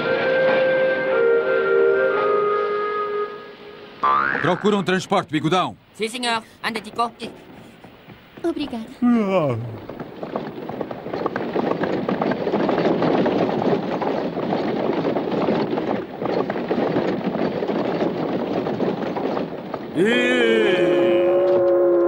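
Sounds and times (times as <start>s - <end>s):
ship's horn blowing: 0.0s - 4.0s, 20.7s - 22.0s
hoofbeats clattering: 6.4s - 22.0s
rattling carriage wheels: 6.4s - 22.0s.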